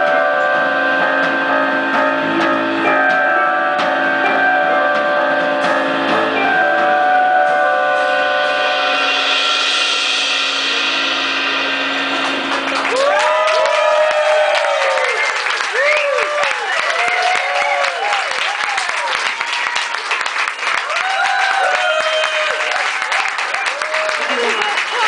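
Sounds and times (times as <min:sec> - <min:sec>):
guitar chords ringing: 0:00.0 - 0:12.8
cymbal wash: 0:07.9 - 0:12.9.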